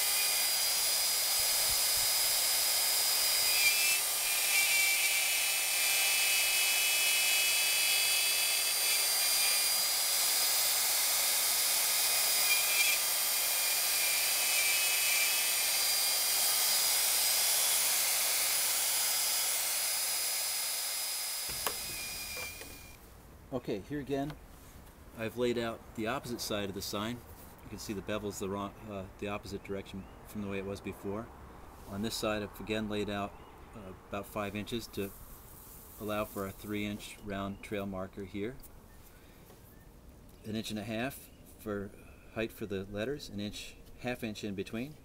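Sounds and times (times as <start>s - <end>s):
router whining while cutting wood: 0.0s - 23.0s.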